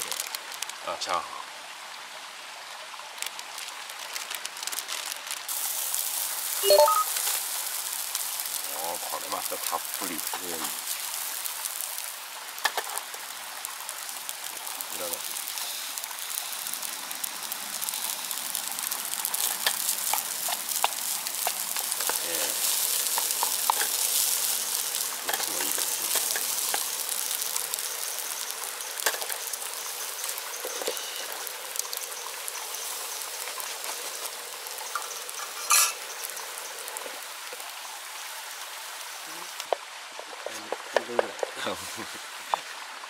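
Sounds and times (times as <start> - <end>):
fried rice sizzling in a pan: 0.0 - 43.0.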